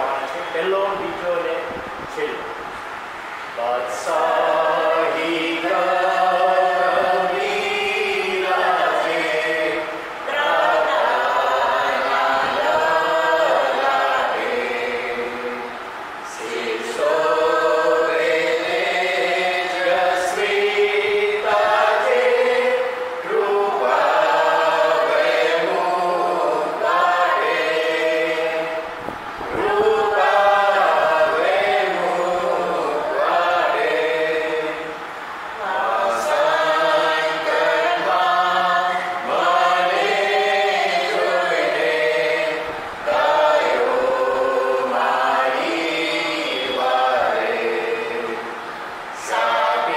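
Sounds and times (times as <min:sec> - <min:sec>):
group singing a hymn unaccompanied: 0:03.0 - 0:49.9.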